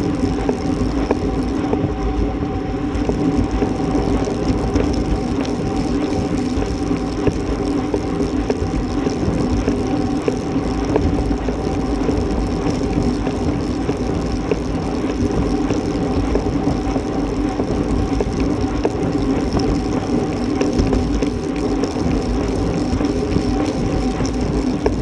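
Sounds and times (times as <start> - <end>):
bicycle tyre road rumble: 0.0 - 25.0
faint steady hum: 0.0 - 25.0.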